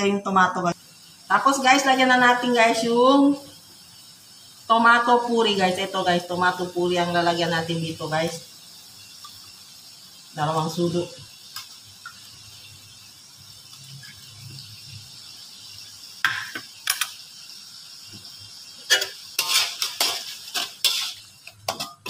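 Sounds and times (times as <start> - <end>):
faint sizzle: 0.0 - 22.0
utensils scraping in metal wok: 13.7 - 14.6, 18.7 - 22.0.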